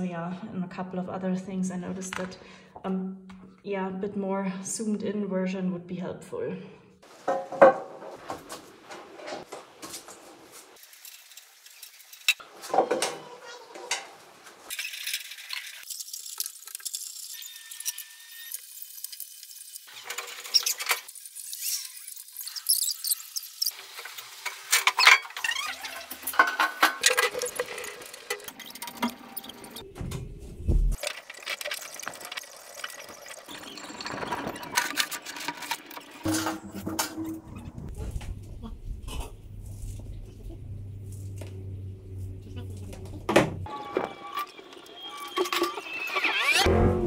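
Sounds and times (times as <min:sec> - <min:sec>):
sheet metal parts clattering: 0:26.2 - 0:29.2, 0:33.7 - 0:38.3.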